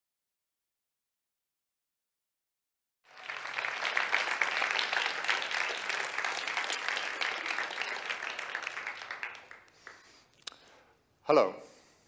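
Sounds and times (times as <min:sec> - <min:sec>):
audience applauding: 0:03.1 - 0:10.3.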